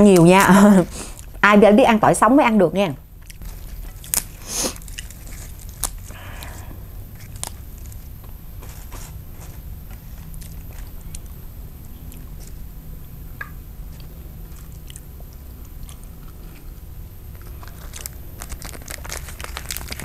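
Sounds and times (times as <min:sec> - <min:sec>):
steady low hum: 0:00.0 - 0:20.0
rice paper crinkling: 0:03.3 - 0:06.6, 0:17.3 - 0:20.0.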